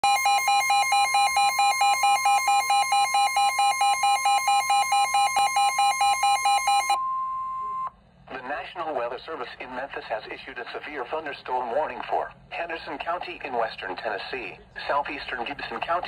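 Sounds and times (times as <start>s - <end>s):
fast alarm beeping: 0.0s - 7.9s
steady high alarm tone: 0.0s - 7.9s.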